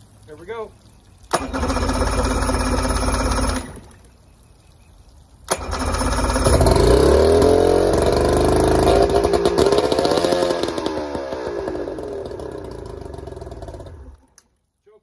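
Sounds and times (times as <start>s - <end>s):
outboard motor running: 1.3s - 3.9s, 5.5s - 14.2s.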